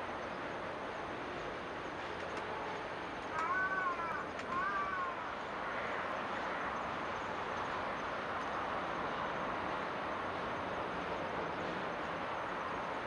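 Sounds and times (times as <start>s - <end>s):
rushing outdoor ambience: 0.0s - 13.0s.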